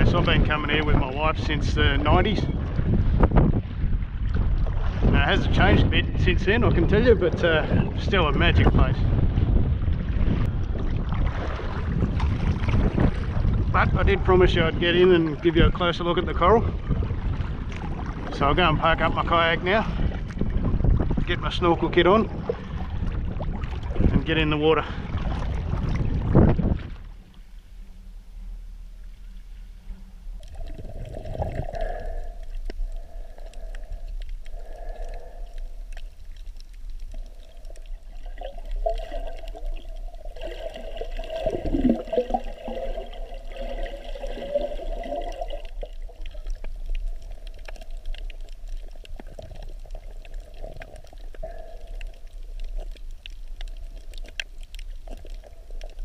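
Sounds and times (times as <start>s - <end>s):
low rumble: 0.0s - 56.0s
underwater gurgling and sloshing: 0.0s - 56.0s
faint clicks: 31.6s - 39.9s, 45.7s - 56.0s.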